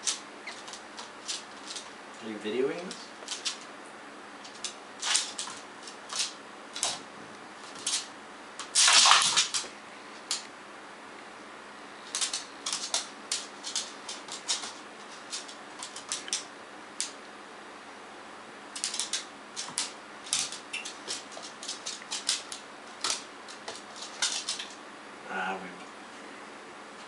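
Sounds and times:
dog toenails clicking on floor: 0.0s - 2.0s, 2.8s - 3.7s, 4.4s - 7.0s, 7.6s - 10.5s, 12.0s - 17.2s, 18.8s - 24.8s.

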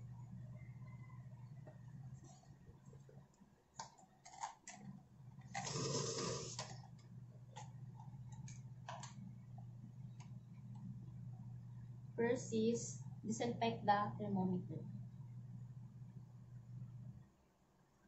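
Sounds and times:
steady low hum: 0.0s - 18.0s
small clicks and handling noises: 3.3s - 5.7s, 6.6s - 9.3s.

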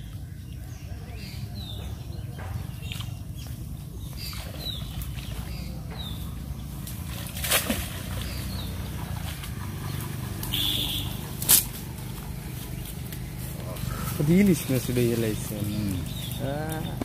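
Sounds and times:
bird chirps: 0.0s - 7.1s, 12.4s - 17.0s
steady low hum: 0.0s - 17.0s.

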